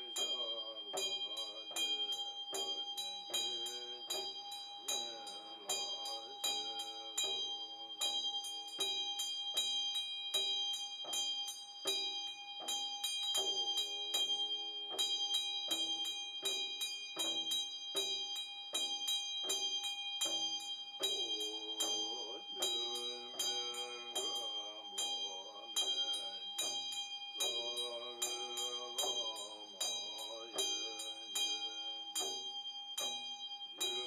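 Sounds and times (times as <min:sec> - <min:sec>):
man chanting: 0:00.0 - 0:09.0, 0:13.4 - 0:15.2, 0:21.0 - 0:33.2, 0:33.8 - 0:34.0
hand bell ringing: 0:00.0 - 0:34.0.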